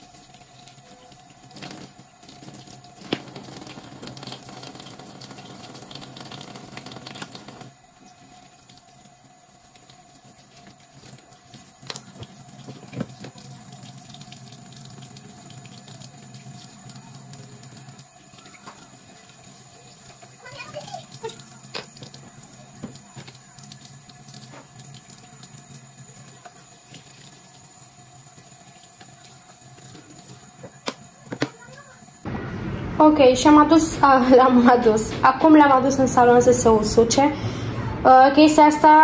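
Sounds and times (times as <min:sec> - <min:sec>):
tap water splashing into sink: 0:00.3 - 0:09.1, 0:09.7 - 0:32.0.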